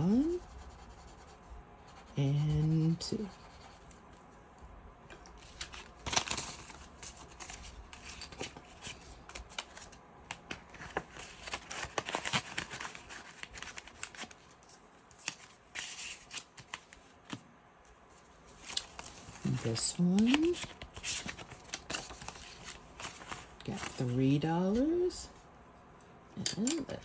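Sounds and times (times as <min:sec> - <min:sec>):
paper bills rustling: 0:05.4 - 0:17.4, 0:18.5 - 0:25.1.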